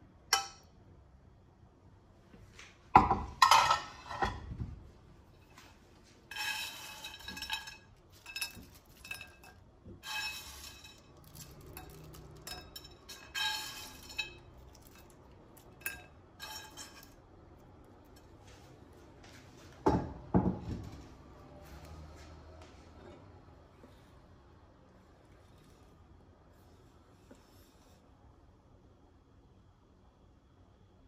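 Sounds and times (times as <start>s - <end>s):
metal utensil clinking on pan: 3.4s - 4.4s, 6.3s - 17.2s
croutons rattling onto plate: 6.4s - 17.2s.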